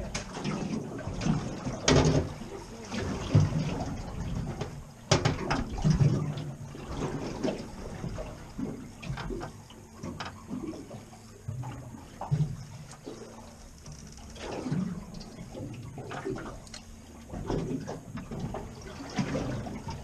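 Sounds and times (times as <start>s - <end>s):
water slapping boat hull: 0.0s - 20.0s
sharp knocks on boat: 1.8s - 6.4s.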